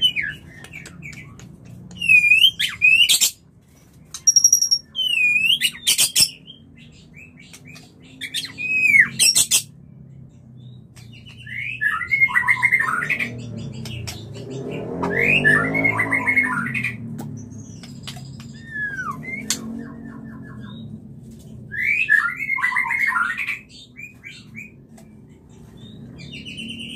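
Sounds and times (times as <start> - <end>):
bird clicks and whistles: 0.0 - 3.4, 4.1 - 6.4, 10.9 - 20.9.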